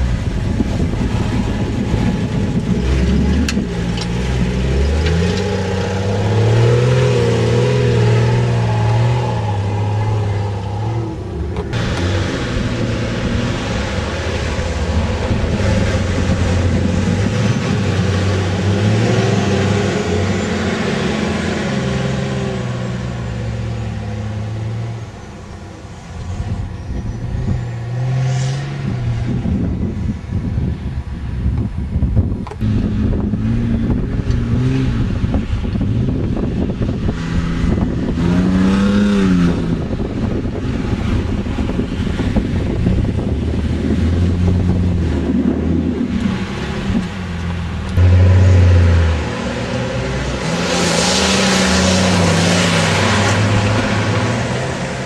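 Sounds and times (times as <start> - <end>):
off-road engines revving: 0.0 - 29.9, 32.5 - 55.0.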